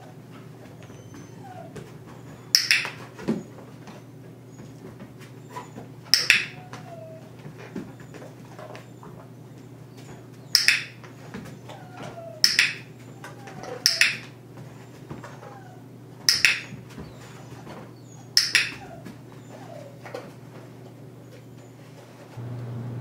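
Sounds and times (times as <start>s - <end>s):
dog whining: 0.0s - 22.4s
dog-training clicker clicks: 2.5s - 3.0s, 6.1s - 6.6s, 10.6s - 11.0s, 12.4s - 12.8s, 13.6s - 14.3s, 16.3s - 16.8s, 18.4s - 18.8s.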